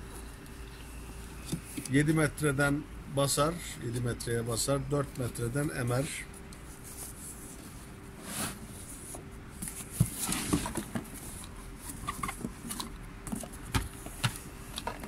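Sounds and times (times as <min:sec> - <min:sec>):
faint steady hum: 0:00.0 - 0:15.0
cardboard rustling and scraping: 0:05.9 - 0:15.0.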